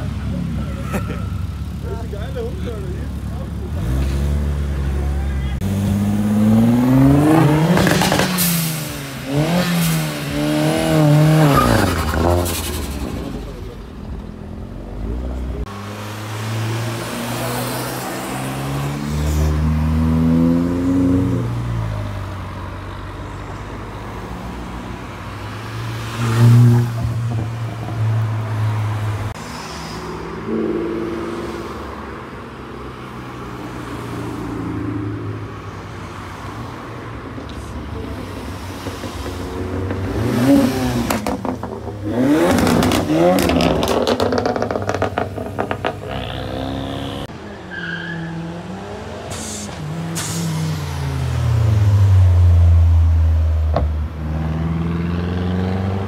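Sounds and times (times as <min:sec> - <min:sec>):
car engines revving hard: 0:00.0 - 0:56.0
exhaust pops and crackles: 0:41.0 - 0:46.2.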